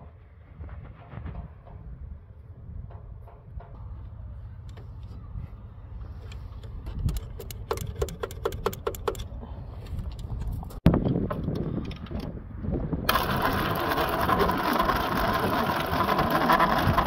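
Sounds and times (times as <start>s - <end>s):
sharp metallic clicks: 6.6s - 9.3s.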